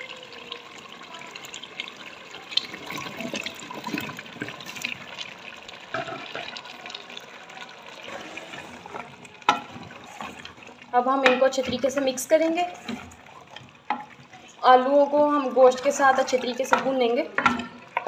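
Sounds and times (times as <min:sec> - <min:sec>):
meat and gravy sizzling in pot: 0:00.0 - 0:18.0
potatoes and spoon knocking pot: 0:09.4 - 0:14.3, 0:15.8 - 0:18.0.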